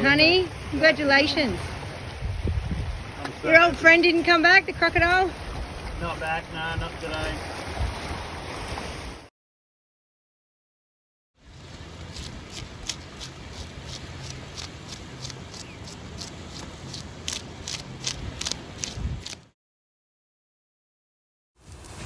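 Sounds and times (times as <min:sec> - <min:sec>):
knife scraping fish scales: 0:12.1 - 0:19.5.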